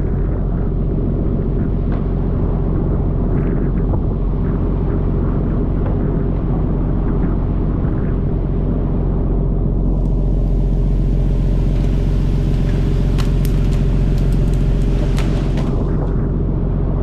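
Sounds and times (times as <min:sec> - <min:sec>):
boat engine drone: 0:00.0 - 0:17.0
water jets hissing: 0:10.1 - 0:15.8.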